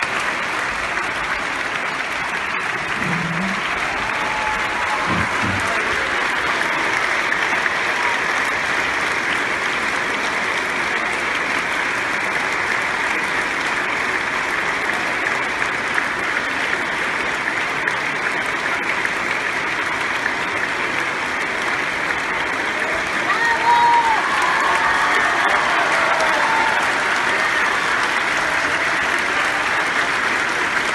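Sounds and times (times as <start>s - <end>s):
audience applauding: 0.0s - 30.9s.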